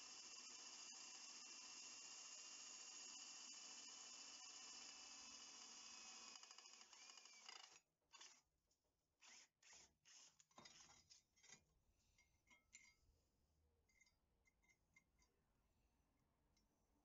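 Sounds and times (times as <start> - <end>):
cordless drill boring into steel: 0.0 - 7.8, 9.2 - 10.9.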